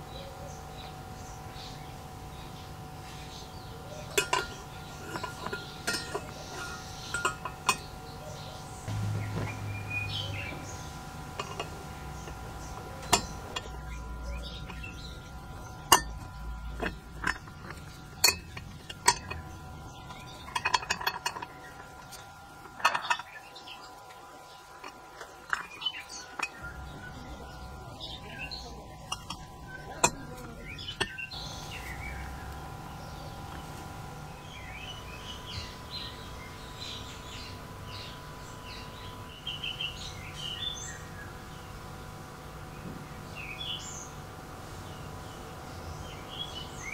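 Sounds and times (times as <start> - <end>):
metal parts clinking: 4.0 - 8.0, 11.4 - 23.5, 24.7 - 26.6, 28.0 - 31.4
metal scraping: 4.0 - 8.0, 8.9 - 32.8.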